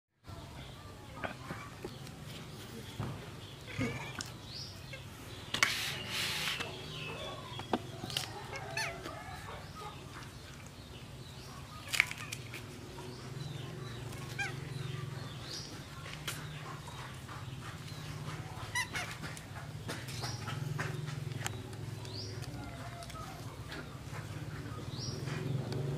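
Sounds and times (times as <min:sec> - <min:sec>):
dry leaf wrapper crackling: 0:05.9 - 0:13.0, 0:21.3 - 0:24.0.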